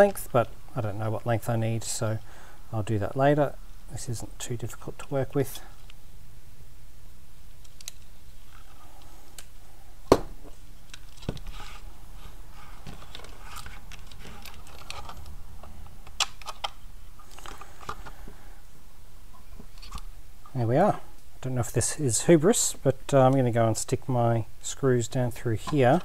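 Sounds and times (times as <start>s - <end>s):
wires scraping plastic: 10.8s - 18.3s.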